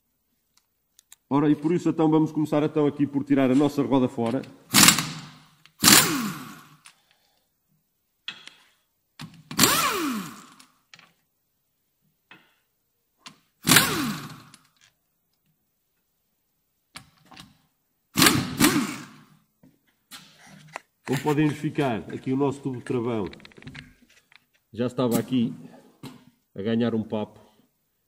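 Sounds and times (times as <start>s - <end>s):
impact wrench whirring: 4.7s - 6.9s, 9.4s - 10.8s, 13.6s - 14.8s, 18.2s - 19.4s.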